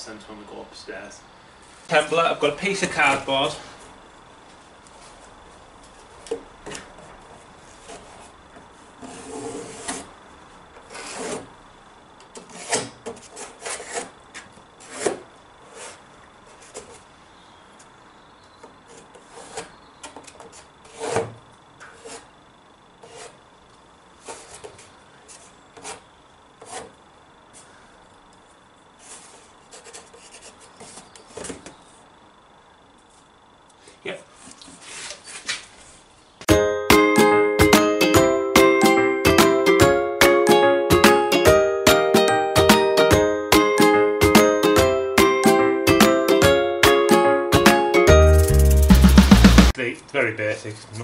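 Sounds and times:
cardboard scraping and rustling: 6.7 - 8.4, 9.0 - 10.1, 10.8 - 11.5, 12.4 - 17.1, 18.9 - 22.3, 24.2 - 26.0, 29.0 - 31.8, 34.7 - 36.0
pencil scratching: 20.9 - 21.3, 23.0 - 23.4, 26.6 - 26.9, 29.0 - 31.0.

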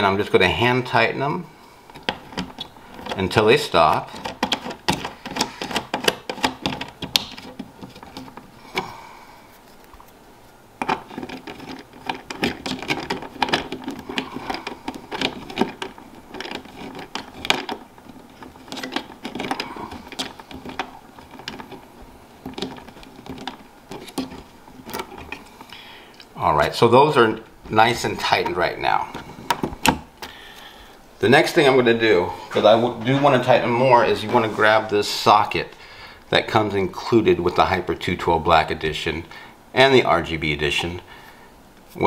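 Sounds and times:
small clicks and scratches: 1.9 - 8.9, 10.8 - 26.4.

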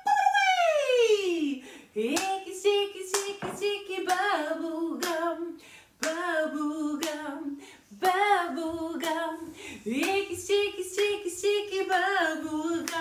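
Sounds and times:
woman singing: 0.0 - 13.0
hands clapping a steady beat: 2.1 - 2.4, 3.1 - 4.3, 5.0 - 5.3, 6.0 - 6.3, 7.0 - 7.3, 9.0 - 9.3, 10.0 - 13.0.

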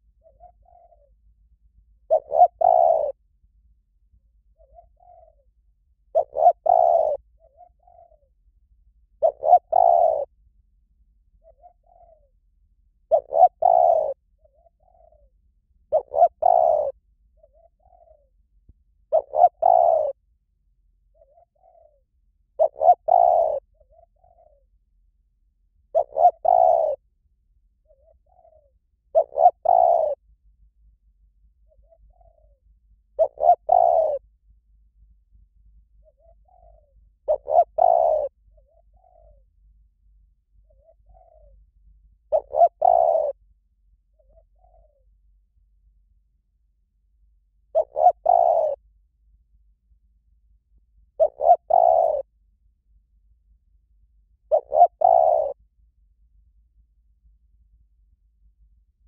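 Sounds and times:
koel calling: 2.1 - 3.1, 6.2 - 7.2, 9.2 - 10.3, 13.1 - 14.2, 15.9 - 16.9, 19.1 - 20.1, 22.6 - 23.6, 26.0 - 27.0, 29.1 - 30.2, 33.2 - 34.2, 36.2 - 38.3, 42.3 - 43.3, 47.8 - 48.8, 51.2 - 52.2, 54.5 - 55.6.

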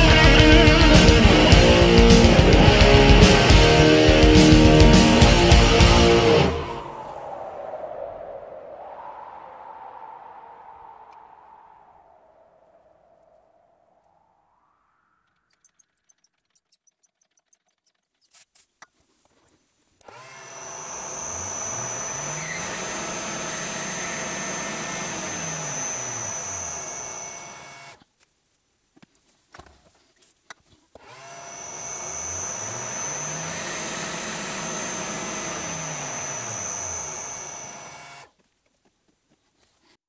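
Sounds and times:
lathe motor whining: 0.0 - 7.0, 20.0 - 28.0, 31.0 - 38.3.

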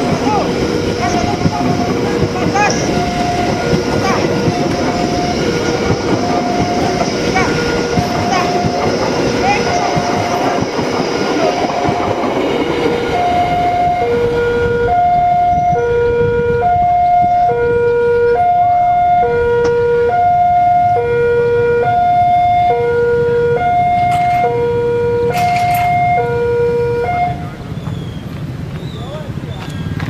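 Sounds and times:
train coaches rumbling: 0.0 - 30.0.

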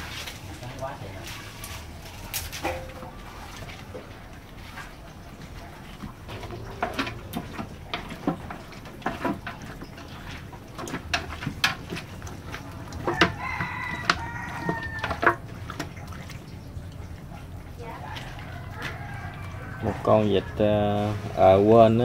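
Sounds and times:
metal spatula scraping a pot: 6.2 - 15.9
rooster crowing: 13.0 - 15.4, 18.3 - 20.6.

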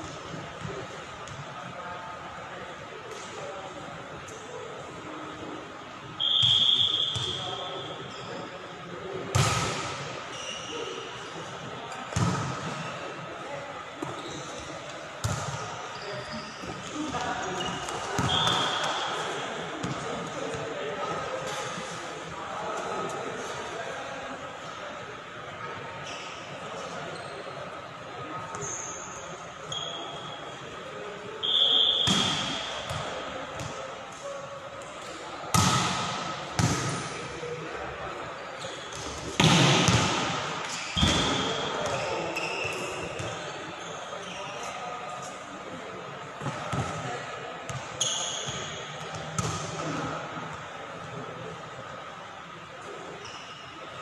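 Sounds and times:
referee's whistle blast: 6.2 - 7.9, 18.2 - 19.1, 31.4 - 32.8
volleyball hits echoing: 9.3 - 10.2, 12.1 - 12.8, 32.0 - 33.8, 35.5 - 37.2, 39.0 - 42.0
volleyball smack echoing: 39.4 - 40.4.

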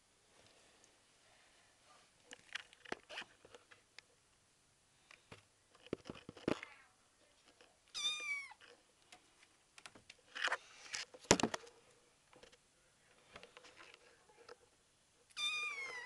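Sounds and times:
kitten meowing: 8.0 - 8.6, 15.4 - 16.0.

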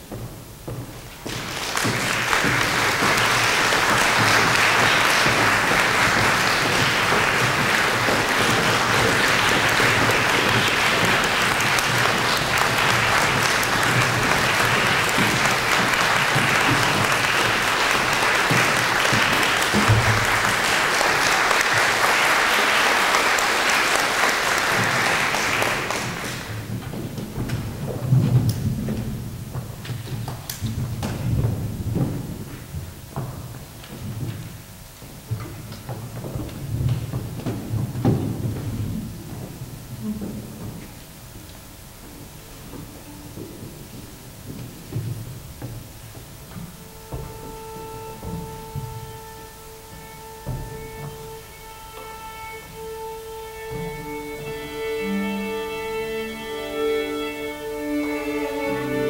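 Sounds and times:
audience applauding: 1.2 - 28.7.

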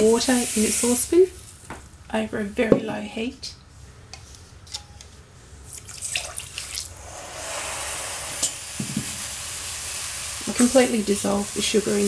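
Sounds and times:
water pouring into saucepan: 5.7 - 12.0.

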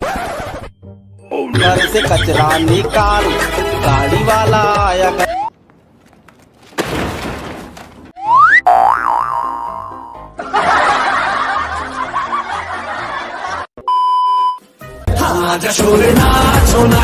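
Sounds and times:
laughter sound effect: 1.6 - 2.8, 9.9 - 13.7
short steady beep: 13.8 - 14.6
dance music with a beat: 15.1 - 17.0.

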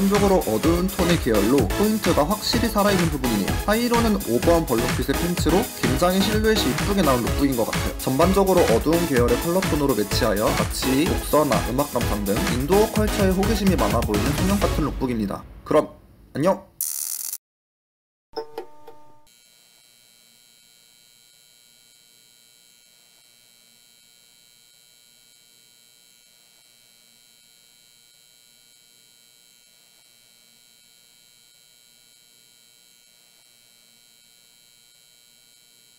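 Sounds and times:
electric buzz and hum: 18.4 - 35.9.

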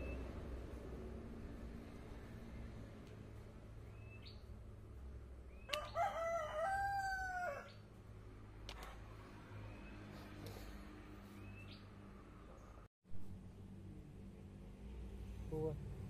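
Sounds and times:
rooster crowing: 5.7 - 7.8.

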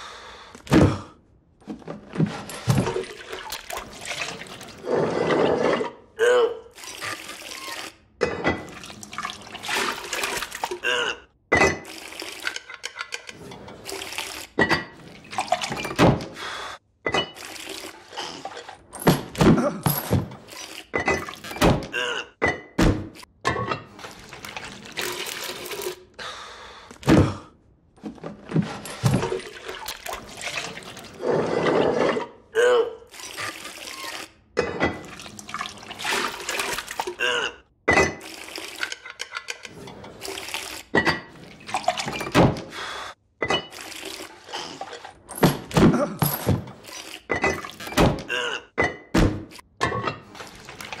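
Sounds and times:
thick liquid pouring into bowls: 24.0 - 26.0.

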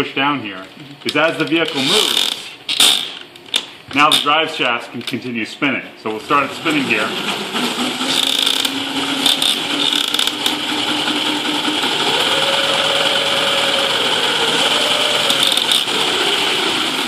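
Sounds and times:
electric motor whirring: 8.1 - 17.0
plastic parts clicking: 15.3 - 15.9.

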